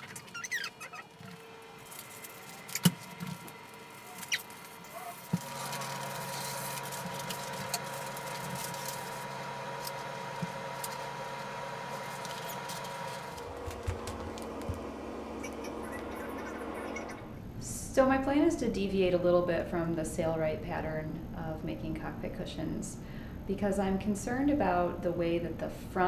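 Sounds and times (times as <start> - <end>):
steady hum: 0.0 - 21.4
paper rustling and crinkling: 1.2 - 16.6.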